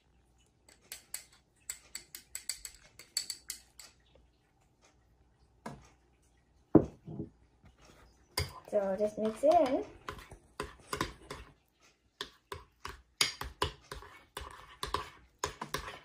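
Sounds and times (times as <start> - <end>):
metal spoon scraping glass bowl: 8.4 - 11.5, 12.2 - 16.0.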